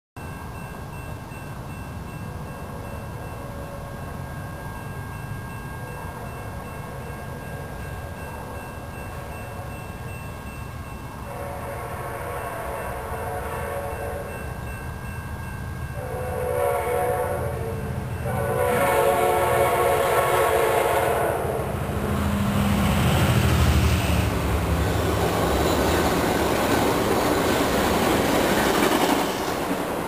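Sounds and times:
train wheels rushing on rails: 0.2s - 30.0s
train horn blasts: 3.4s - 4.2s, 11.2s - 14.4s, 16.0s - 21.8s.

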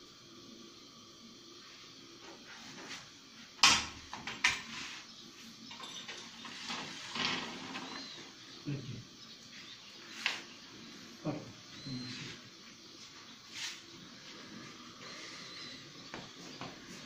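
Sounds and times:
iron fire rake clanking: 5.7s - 8.0s
rake scraping and rattling: 5.7s - 8.1s.

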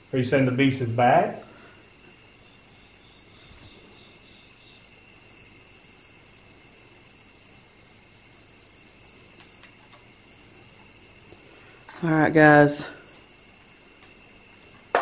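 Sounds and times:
night insects chorus: 0.0s - 15.0s
regular cricket chirps: 0.0s - 15.0s
faint clicks: 9.4s - 10.1s.

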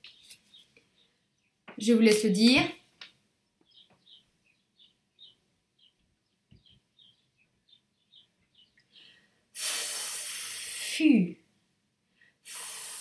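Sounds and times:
faint high bird chirps: 3.6s - 9.2s.

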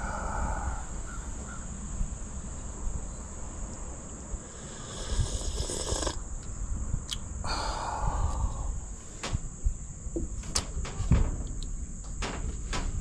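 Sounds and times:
high-pitched insect chorus: 0.0s - 13.0s
sharp knocks: 10.2s - 13.0s.

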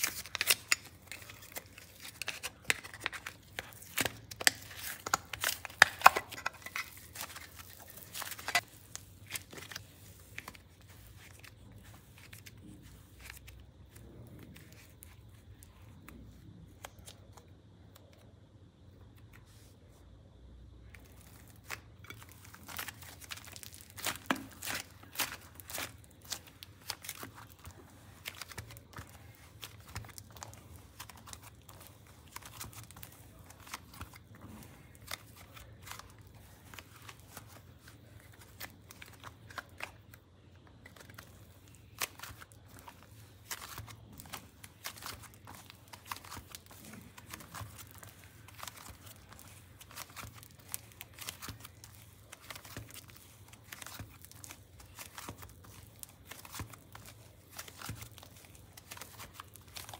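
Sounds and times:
slime crackling and tearing: 0.0s - 11.7s, 21.0s - 40.2s, 40.8s - 59.9s.

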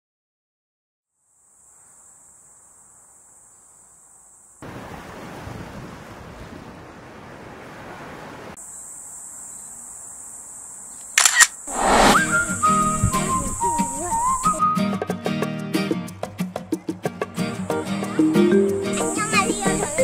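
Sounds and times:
waves washing onto shore: 4.6s - 8.6s
sharp clicks: 11.1s - 12.2s
faint high hiss: 11.6s - 14.6s
music with whistled tune: 12.2s - 16.0s, 17.4s - 20.0s.

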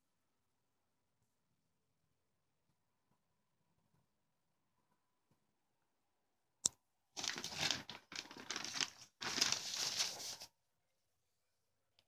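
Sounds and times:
paper rustling: 7.2s - 10.6s.

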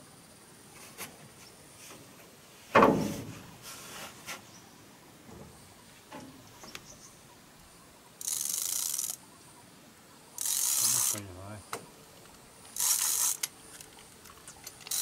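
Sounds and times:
fishing reel gears whirring: 8.2s - 9.2s, 10.4s - 11.3s, 12.6s - 15.0s.

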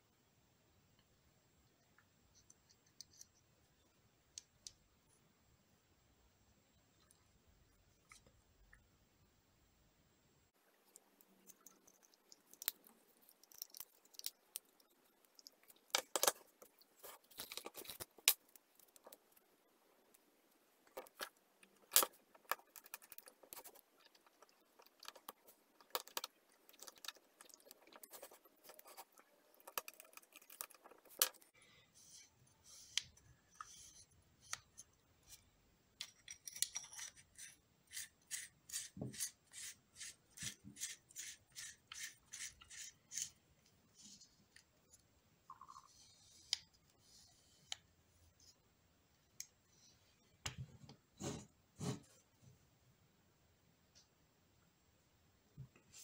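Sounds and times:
metal parts scraping and clicking: 36.0s - 38.9s.

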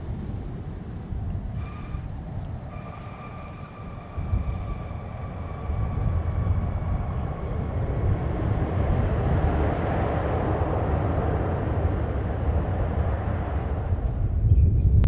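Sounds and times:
jet engine roar: 0.0s - 15.0s
thin jet engine whine: 0.0s - 15.0s.

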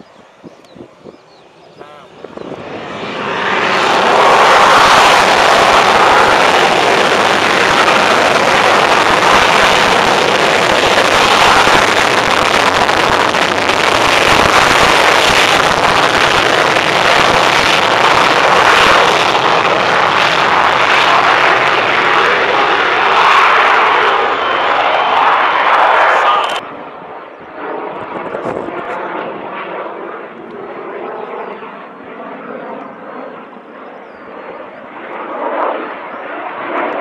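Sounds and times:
jet engine at high power: 0.0s - 37.0s.

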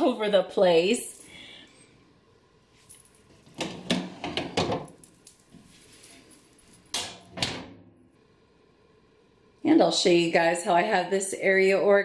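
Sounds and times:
knocks and clatters of handling: 2.8s - 7.7s.

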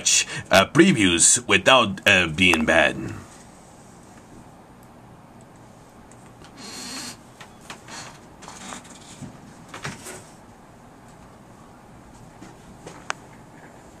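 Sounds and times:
low background hiss: 0.0s - 7.4s.

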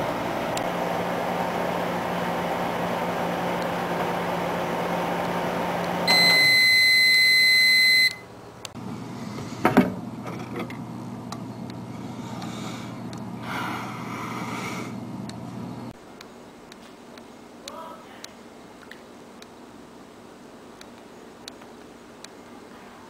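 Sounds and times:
microwave oven humming: 0.0s - 16.0s
long microwave beep: 6.0s - 8.3s.

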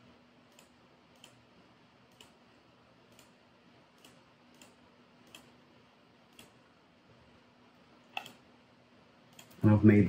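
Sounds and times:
computer mouse clicks: 0.4s - 1.4s, 2.1s - 2.4s, 3.0s - 5.6s, 6.2s - 6.6s, 8.1s - 8.4s, 9.3s - 9.6s.

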